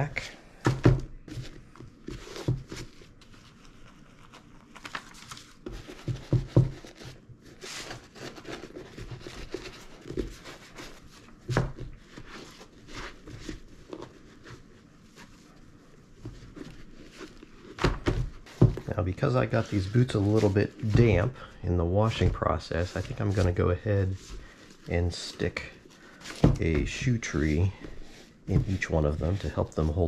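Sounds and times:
cloth rubbing wet leather: 0:18.8 - 0:21.4, 0:22.0 - 0:30.0
brush scrubbing leather boot: 0:18.9 - 0:21.3, 0:24.8 - 0:30.0.

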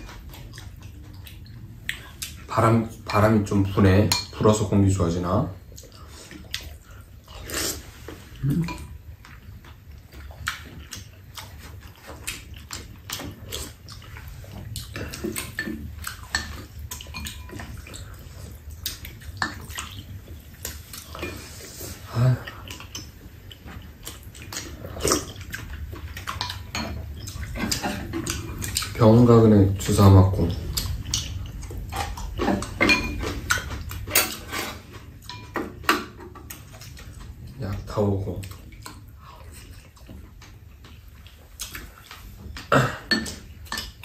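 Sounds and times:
chewing: 0:00.0 - 0:03.2, 0:05.6 - 0:44.0
slurping: 0:05.8 - 0:09.4.

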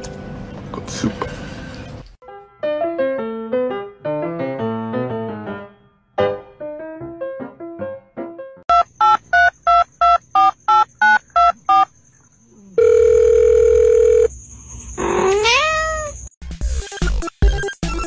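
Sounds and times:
piano notes: 0:00.0 - 0:08.6
cat meowing: 0:15.1 - 0:16.3.

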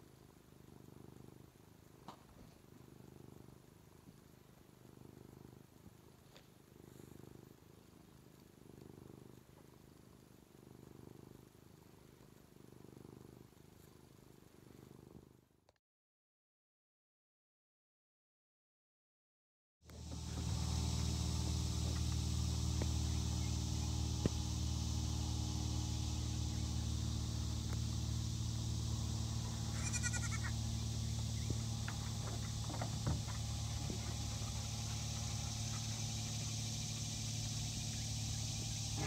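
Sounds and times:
high even hiss: 0:19.9 - 0:39.0
low even hum: 0:19.9 - 0:39.0
bleat-like animal call: 0:29.7 - 0:30.6.

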